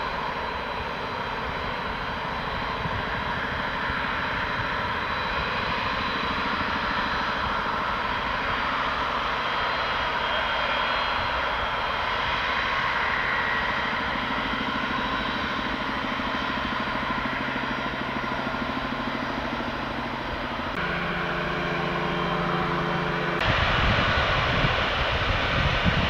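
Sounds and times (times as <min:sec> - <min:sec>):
jet engines humming: 0:00.0 - 0:26.0
heavy low rumble: 0:15.6 - 0:26.0.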